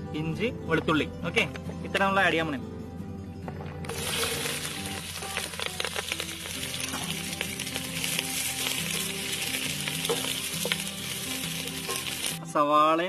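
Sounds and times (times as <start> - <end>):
vegetables sizzling in oil: 3.9 - 12.4.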